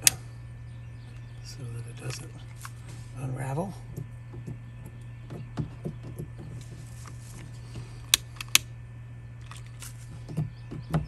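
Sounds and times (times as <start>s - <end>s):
steady low hum: 0.0s - 11.0s
cord rustling: 6.5s - 8.6s.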